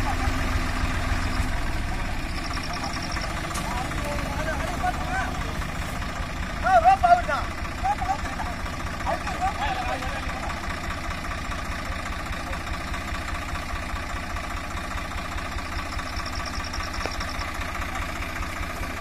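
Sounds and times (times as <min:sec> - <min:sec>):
diesel tractor engine idling: 0:00.0 - 0:19.0
high rapid chirping: 0:02.2 - 0:03.5, 0:15.7 - 0:17.6.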